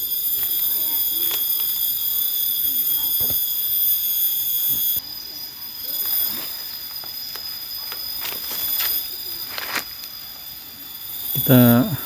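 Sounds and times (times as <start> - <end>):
insects buzzing chorus: 0.0 - 12.0
leaves rustling: 6.2 - 10.2.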